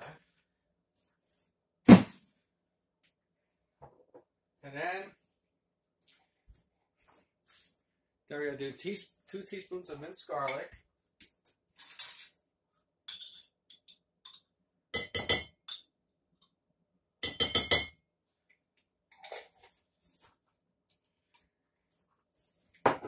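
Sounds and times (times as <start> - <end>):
spoon clinking against a jar: 13.1 - 15.9, 17.2 - 18.0.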